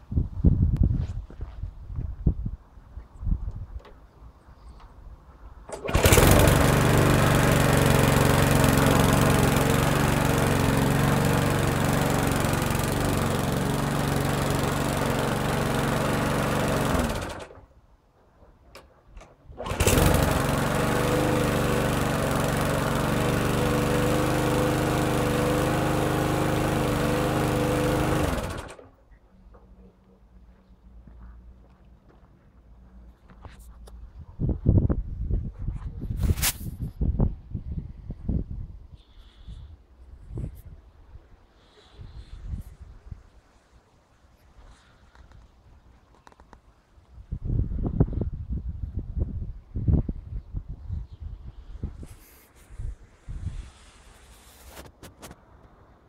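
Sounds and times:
lawn mower engine running: 5.7 - 17.7, 19.5 - 29.0.

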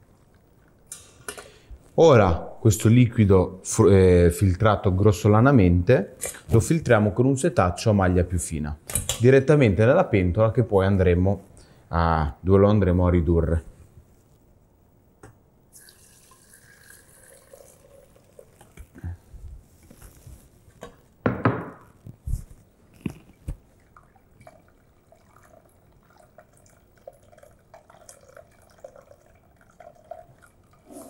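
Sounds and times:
broth trickling through sieve: 15.8 - 20.6, 23.6 - 31.0.

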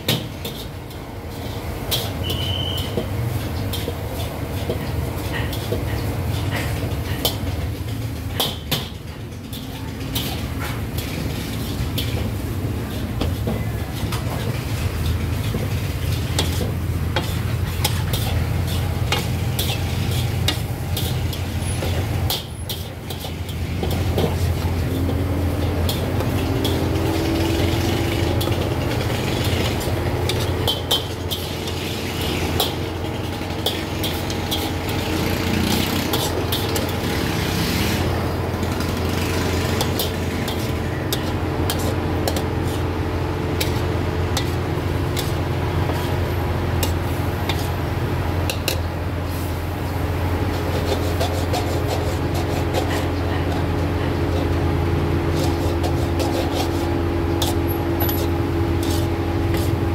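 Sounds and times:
metal spatula clanking and scraping: 0.0 - 48.9, 50.4 - 59.9
food sizzling: 0.0 - 59.9.

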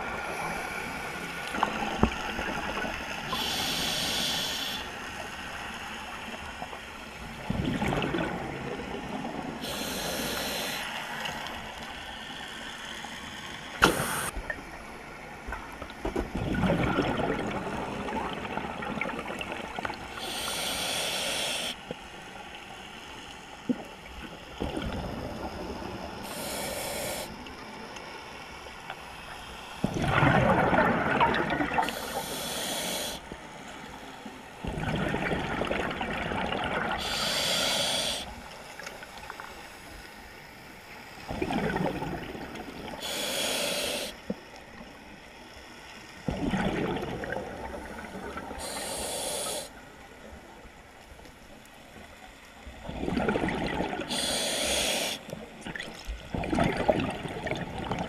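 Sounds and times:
regulator hiss on inhale: 3.3 - 5.3, 9.6 - 11.3, 13.8 - 14.4, 20.1 - 21.8, 26.1 - 28.1, 31.8 - 34.2, 37.0 - 40.0, 42.9 - 44.3, 48.0 - 49.9, 54.0 - 55.4
exhaust bubbles rushing: 46.3 - 47.6.

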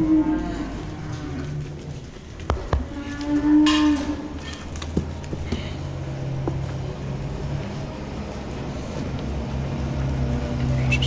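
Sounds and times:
cow mooing: 0.0 - 1.7, 2.8 - 4.4.

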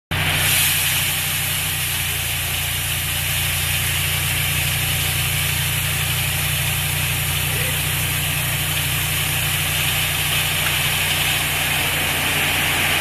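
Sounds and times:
gravel pouring: 0.1 - 13.0
truck engine running: 0.1 - 13.0.

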